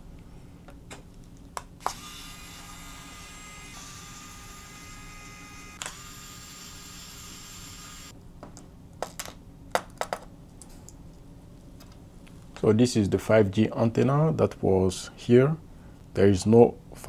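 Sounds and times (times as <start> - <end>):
electric screwdriver whirring: 1.8 - 8.1.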